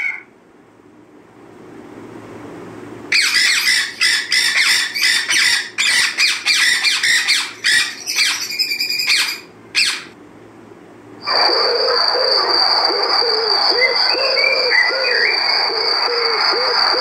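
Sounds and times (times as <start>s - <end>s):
parrots calling: 0.0s - 0.3s, 3.1s - 10.2s, 11.2s - 17.0s.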